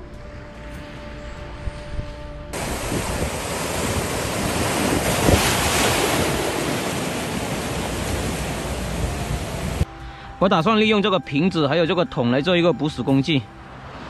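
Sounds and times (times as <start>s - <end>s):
sea waves breaking on rock: 2.6s - 9.8s.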